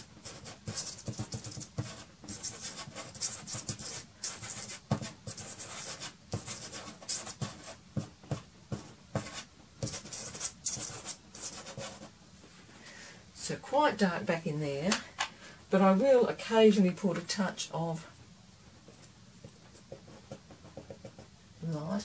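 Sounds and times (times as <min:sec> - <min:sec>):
pastel stick scratching paper: 0:00.0 - 0:12.1.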